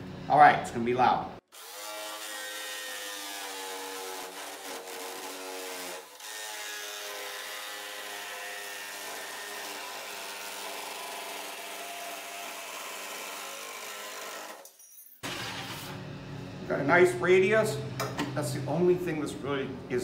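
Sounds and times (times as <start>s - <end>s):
jigsaw cutting metal: 1.5s - 16.0s.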